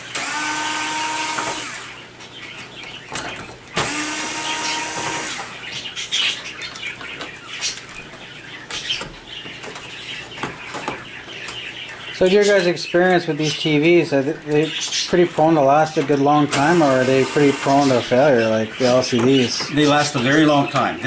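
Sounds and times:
cordless drill running: 0.1s - 2.0s, 3.8s - 5.5s, 16.5s - 18.0s.

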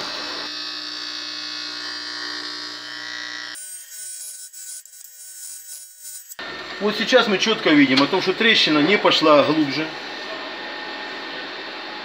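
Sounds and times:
welding arc buzzing: 0.0s - 6.8s.

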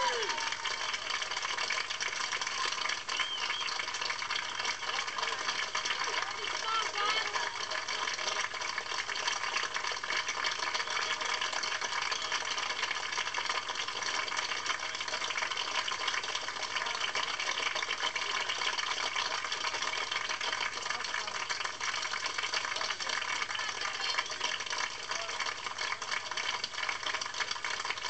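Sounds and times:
crowd applauding: 0.0s - 28.0s.

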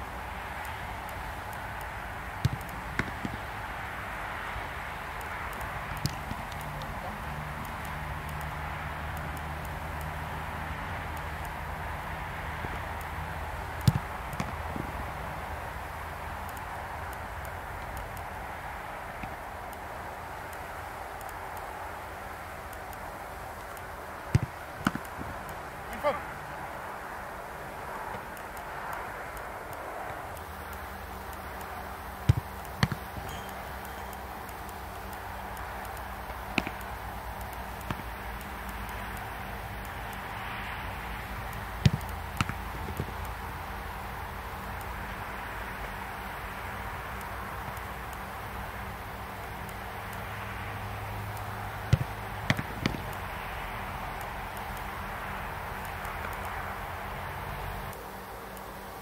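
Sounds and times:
background noise: 0.0s - 59.0s
low background hum: 0.0s - 59.0s
football being kicked: 13.9s - 14.6s, 24.3s - 25.0s, 32.2s - 33.3s
football thuds: 13.9s - 14.9s.

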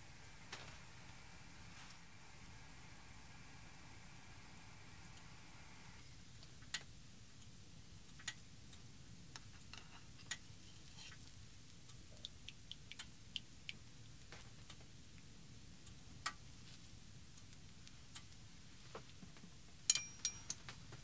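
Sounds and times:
faint steady hum: 0.0s - 21.0s
metal utensil tapping saucepan: 19.9s - 20.6s.

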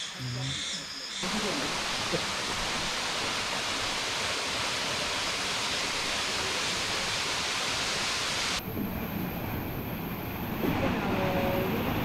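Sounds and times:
rushing hiss: 1.2s - 8.6s.

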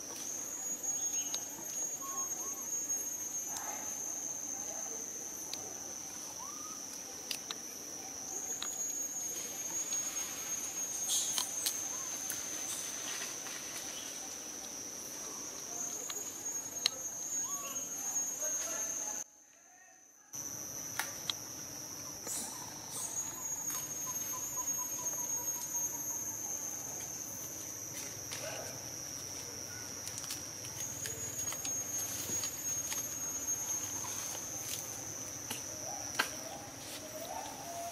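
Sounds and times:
insects trilling: 0.0s - 37.9s.

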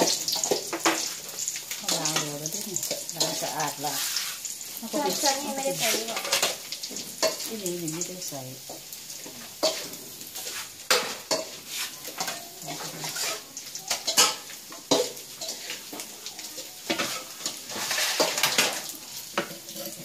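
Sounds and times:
metal bowls clanking and scraping: 0.0s - 7.5s, 9.2s - 20.0s.

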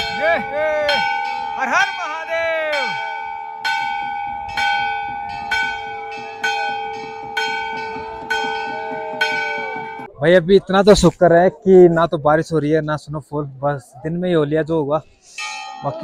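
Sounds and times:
voices calling out: 0.0s - 3.3s
temple bell ringing: 0.0s - 10.1s, 15.4s - 16.0s.

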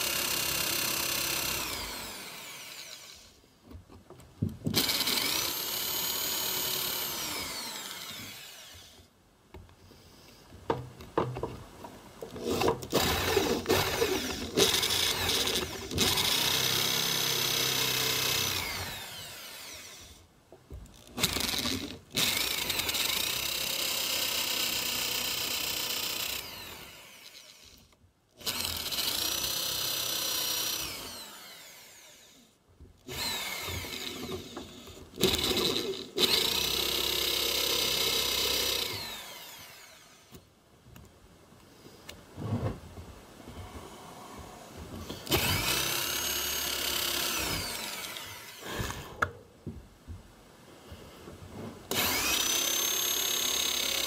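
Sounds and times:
electric drill boring into log: 0.0s - 3.4s, 4.7s - 9.1s, 12.4s - 20.3s, 21.0s - 40.5s, 45.0s - 49.3s, 51.9s - 54.0s.

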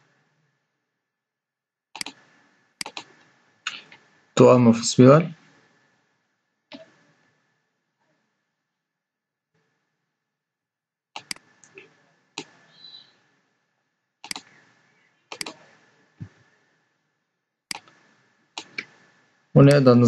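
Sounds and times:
computer mouse clicks: 2.0s - 4.1s, 11.2s - 13.0s, 14.2s - 14.6s, 15.3s - 16.4s, 17.7s - 18.0s, 18.6s - 19.0s.

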